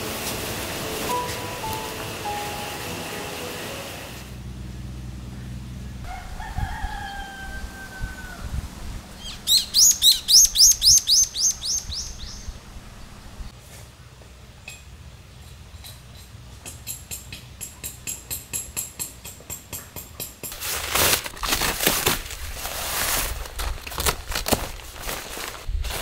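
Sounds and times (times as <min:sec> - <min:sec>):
rooster crowing: 0:06.0 - 0:08.8
songbird singing high notes: 0:09.2 - 0:12.6.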